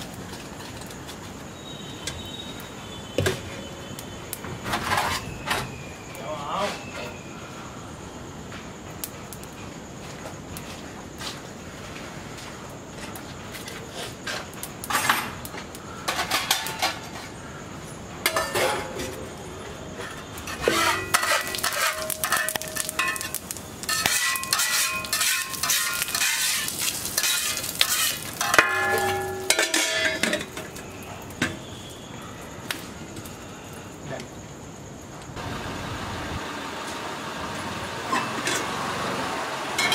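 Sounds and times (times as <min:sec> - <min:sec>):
ladle and pots clanking: 0:18.2 - 0:19.2, 0:20.4 - 0:30.7.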